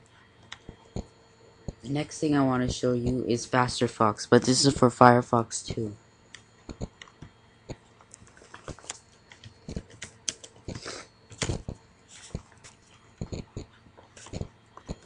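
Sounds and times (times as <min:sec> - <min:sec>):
keyboard typing clicks: 0:06.7 - 0:12.4.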